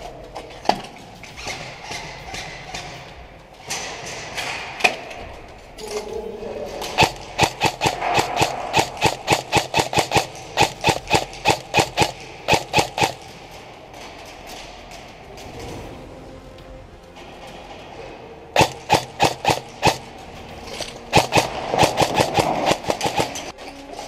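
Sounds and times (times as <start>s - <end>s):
airsoft rifle shots: 6.8s - 13.4s, 18.6s - 20.1s, 21.0s - 23.5s.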